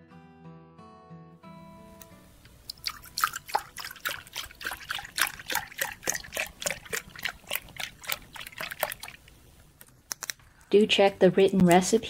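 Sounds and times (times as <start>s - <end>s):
milk pouring into plastic cup: 2.5s - 9.4s.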